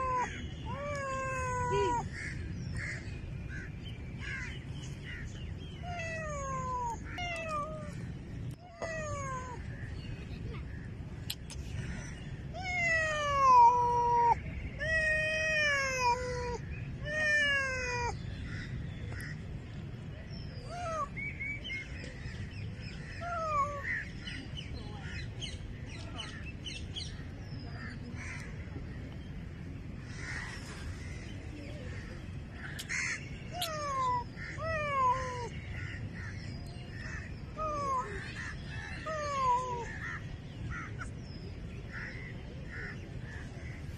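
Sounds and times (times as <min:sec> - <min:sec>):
cat meowing: 0:00.0 - 0:02.1, 0:05.8 - 0:08.0, 0:12.6 - 0:18.2, 0:33.5 - 0:35.5.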